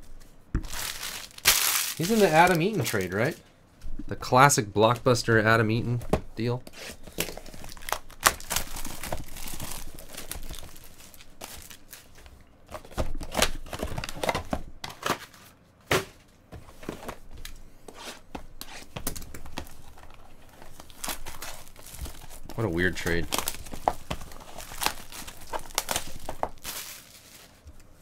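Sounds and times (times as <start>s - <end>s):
plastic wrapping crinkling: 0.6s - 3.4s, 6.8s - 14.4s, 18.9s - 28.0s.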